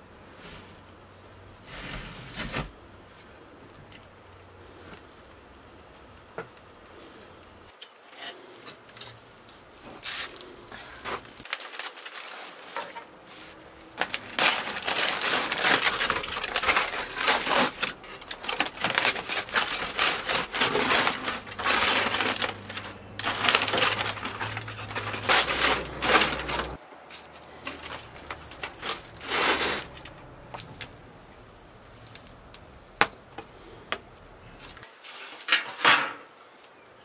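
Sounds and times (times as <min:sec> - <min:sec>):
aluminium foil crinkling: 0:08.7 - 0:35.6.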